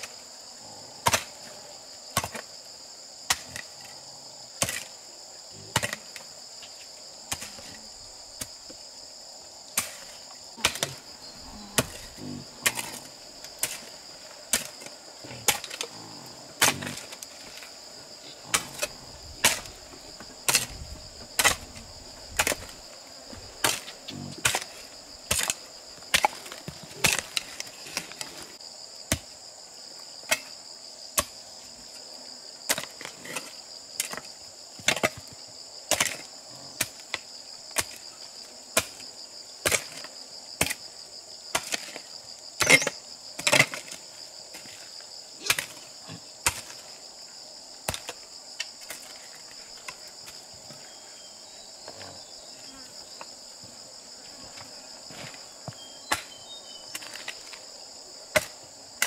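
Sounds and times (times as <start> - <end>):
high insect chorus: 0.0 - 59.0.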